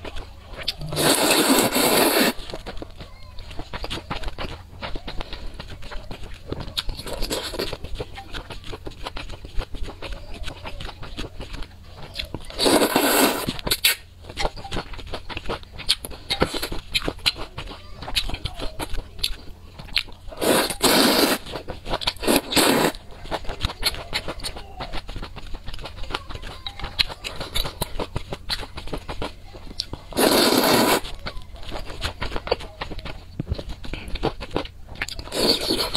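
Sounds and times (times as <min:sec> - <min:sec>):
wet chewing and mouth clicks: 0:00.0 - 0:35.9
slurping noodles: 0:00.6 - 0:02.6, 0:12.5 - 0:14.0, 0:20.3 - 0:25.1, 0:30.1 - 0:31.2, 0:33.9 - 0:35.9.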